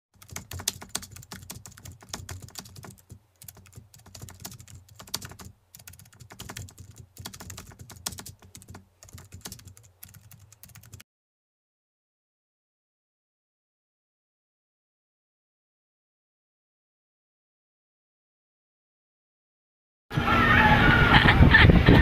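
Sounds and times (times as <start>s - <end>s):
keyboard typing clicks: 0.2s - 11.0s.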